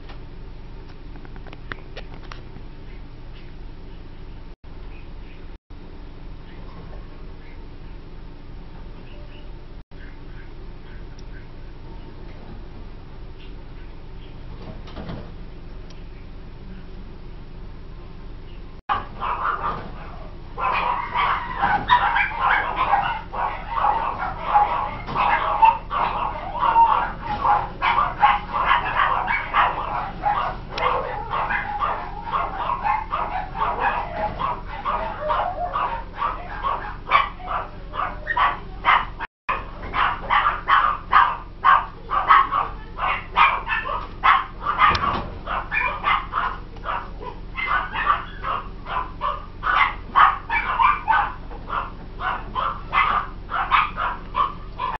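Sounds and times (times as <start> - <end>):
baby marmosets squeaking: 20.6 - 36.7.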